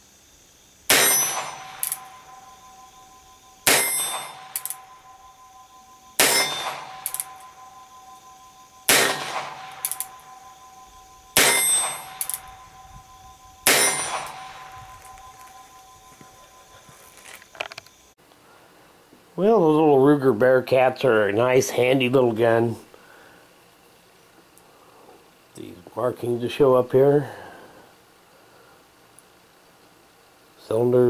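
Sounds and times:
sharp revolver clicks: 3.7s - 4.8s, 6.2s - 7.5s, 8.9s - 10.2s, 12.2s - 12.5s
revolver shots: 8.9s - 10.2s.

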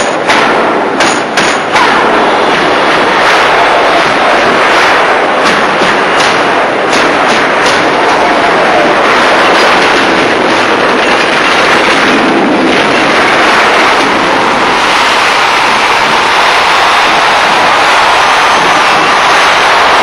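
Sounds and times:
sharp knock: 0.0s - 12.4s
crowd cheering: 0.0s - 20.0s.

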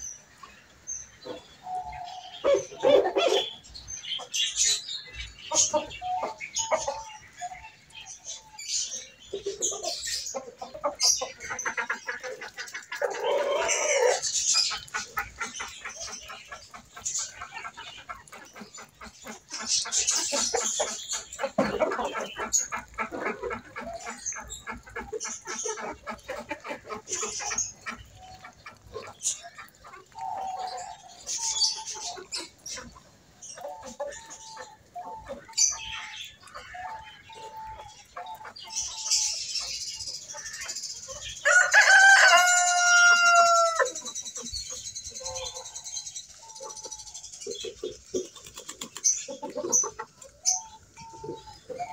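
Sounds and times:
chickens clucking: 0.0s - 51.9s
rooster crowing: 41.4s - 43.9s.

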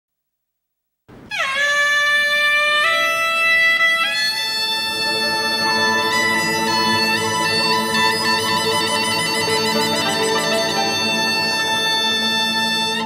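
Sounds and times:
suona playing held notes: 1.3s - 13.0s
sustained accompaniment: 2.8s - 13.0s.

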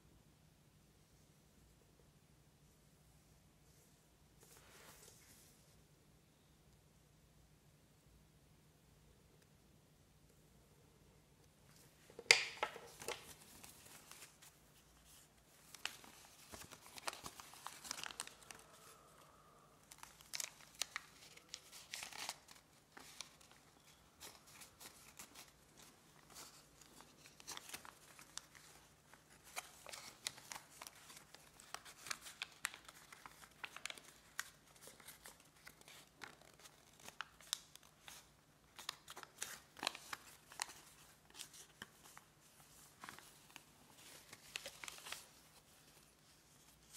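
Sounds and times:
paper being folded and creased: 12.0s - 46.9s.

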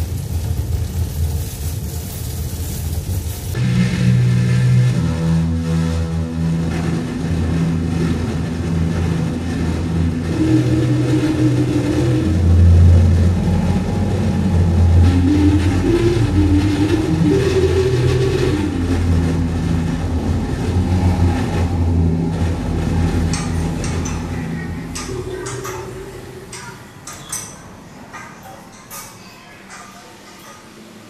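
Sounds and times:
electronic drone music: 3.5s - 28.2s.

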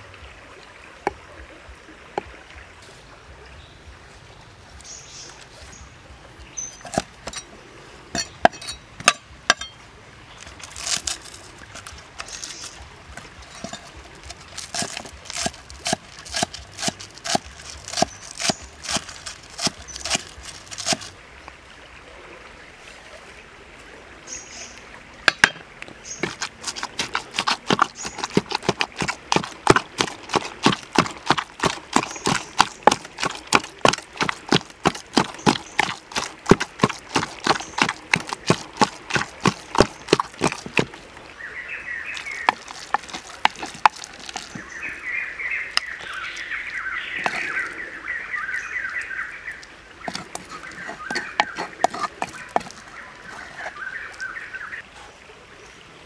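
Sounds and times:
cleaver chopping on wooden block: 6.8s - 7.5s, 8.2s - 9.8s, 10.6s - 21.1s, 25.3s - 25.6s, 26.2s - 41.0s, 42.2s - 44.7s, 47.2s - 47.5s, 50.1s - 52.9s
pestle pounding in wooden mortar: 6.8s - 7.5s, 8.2s - 9.7s, 10.6s - 21.1s, 26.2s - 41.0s, 42.2s - 44.7s, 47.2s - 47.5s, 50.1s - 53.7s.

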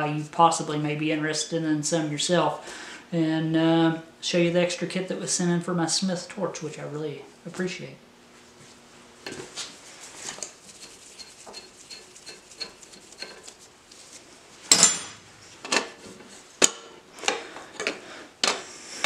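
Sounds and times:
loud metallic clank: 14.7s - 15.2s
wrench clinking on metal fitting: 14.7s - 15.2s.

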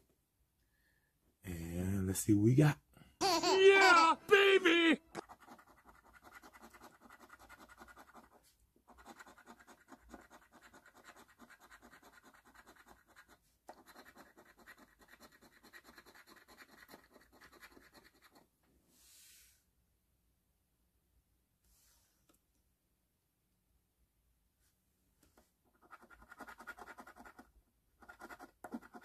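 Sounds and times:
coin scratching a ticket: 5.2s - 18.4s, 25.8s - 29.0s.

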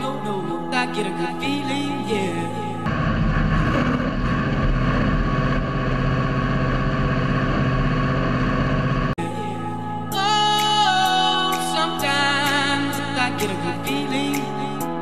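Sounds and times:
tractor diesel engine running: 2.9s - 9.2s.

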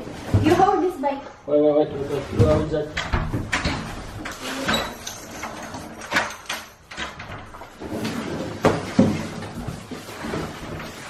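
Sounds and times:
door opening: 2.4s - 7.8s.

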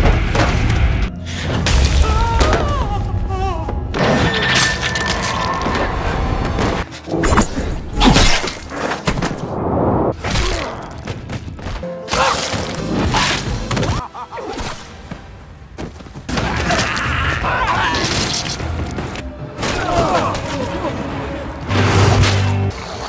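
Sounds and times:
dramatic music: 16.3s - 23.0s.

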